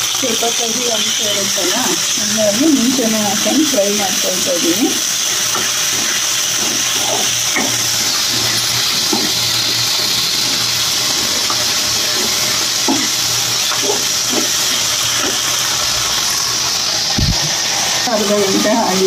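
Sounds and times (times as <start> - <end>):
vegetables sizzling in hot oil: 0.0 - 19.0
steel spoon scraping a pan: 3.3 - 16.4.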